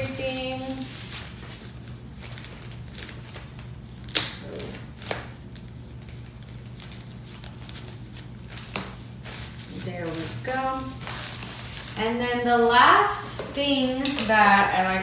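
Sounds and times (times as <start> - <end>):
packaging rustling: 1.1 - 12.0.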